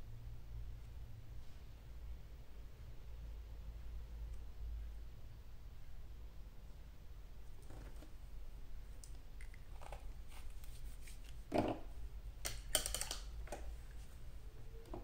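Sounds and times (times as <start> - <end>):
paint pots and brush clicking: 12.4 - 14.0.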